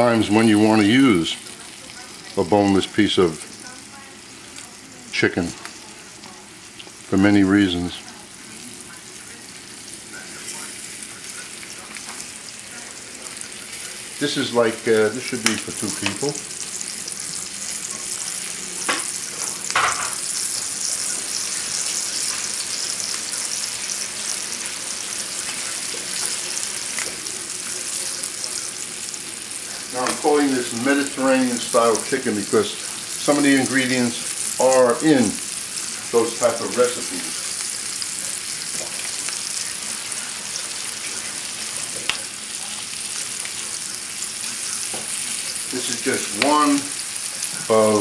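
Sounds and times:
chicken sizzling in oil: 0:00.0 - 0:48.0.

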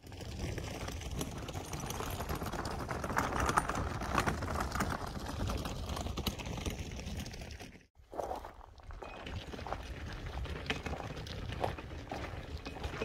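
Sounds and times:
footsteps on a trail: 0:08.0 - 0:13.0.

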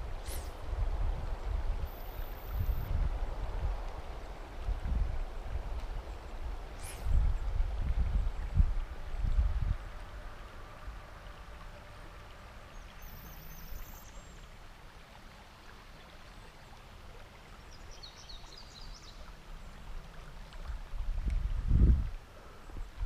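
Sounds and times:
river rushing over riffle: 0:00.0 - 0:00.8.

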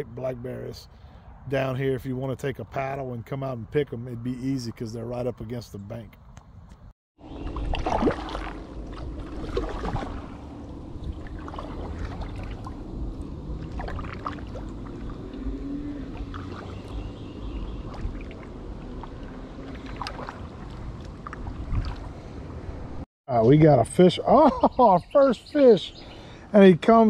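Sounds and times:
water splashing around kayak: 0:07.2 - 0:23.0
wind on microphone: 0:07.3 - 0:23.0.

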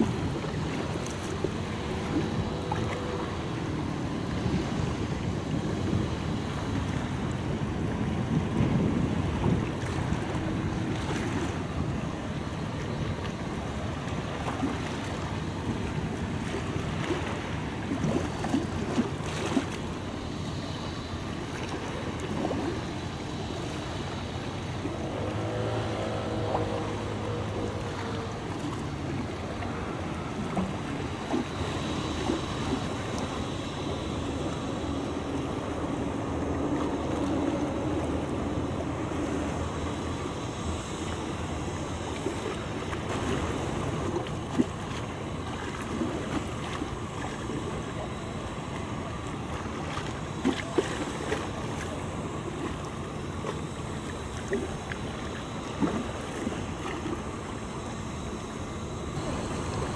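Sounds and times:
wind noise on microphone: 0:00.0 - 0:24.2
ship engine and water rumble: 0:00.0 - 0:59.9.

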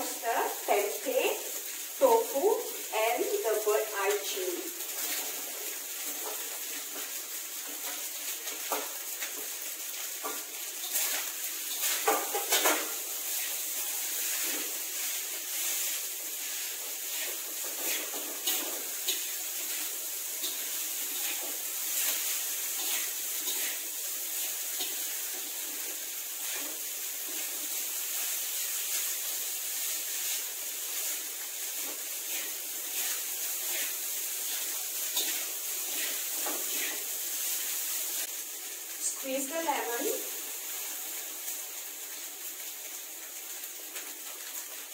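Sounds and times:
rice sizzling in a wok: 0:00.0 - 0:44.9
metal spatula scraping a pan: 0:10.3 - 0:25.6, 0:31.8 - 0:37.6.

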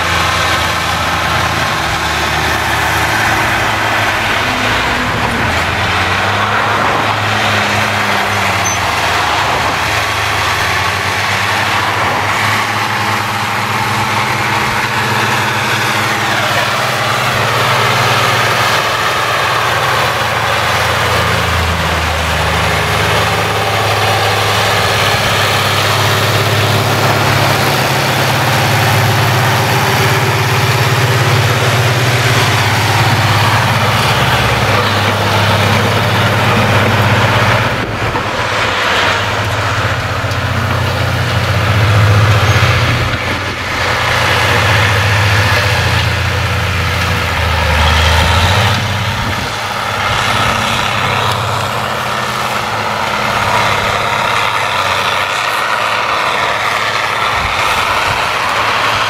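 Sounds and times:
tractor diesel engine under load: 0:00.0 - 0:59.0.

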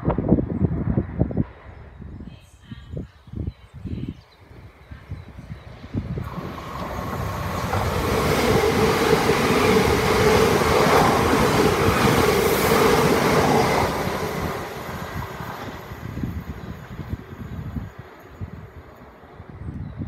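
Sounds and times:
train passing at speed: 0:05.3 - 0:20.0.

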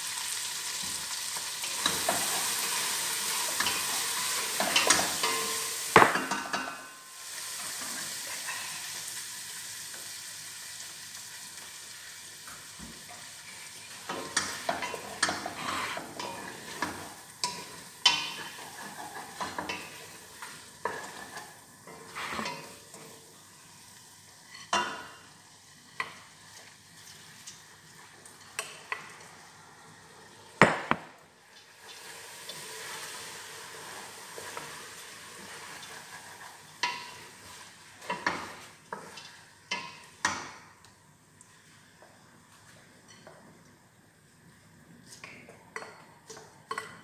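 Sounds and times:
food sizzling: 0:00.0 - 0:47.0
spoon scraping a metal pot: 0:14.9 - 0:16.9
sharp knock: 0:30.6 - 0:31.1.

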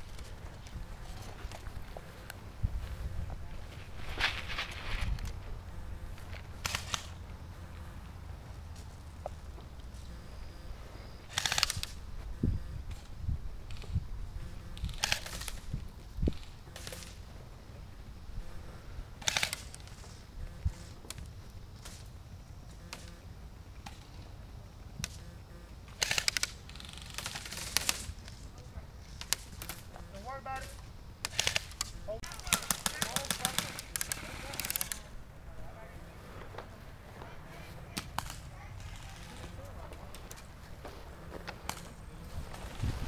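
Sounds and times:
wind on microphone: 0:00.0 - 0:06.2, 0:11.6 - 0:16.7, 0:42.2 - 0:43.0
airsoft guns firing: 0:06.6 - 0:07.2, 0:11.3 - 0:12.0, 0:19.2 - 0:19.8, 0:25.9 - 0:28.2, 0:29.2 - 0:35.1.

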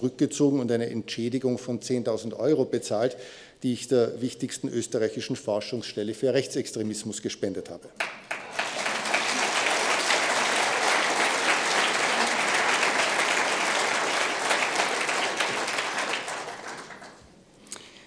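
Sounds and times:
audience applauding: 0:08.0 - 0:17.4.

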